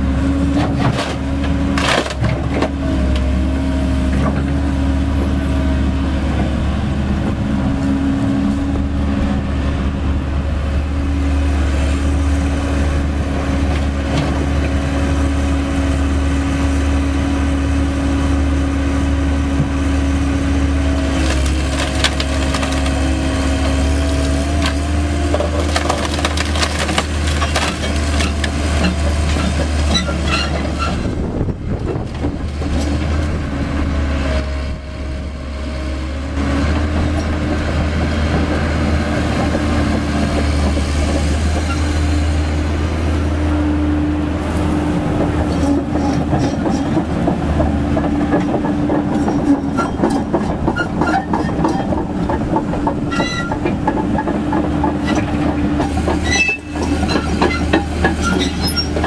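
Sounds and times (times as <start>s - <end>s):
diesel engine running: 0.0s - 59.0s
steel tracks clanking and squealing: 27.4s - 32.0s, 39.4s - 42.5s, 44.4s - 59.0s.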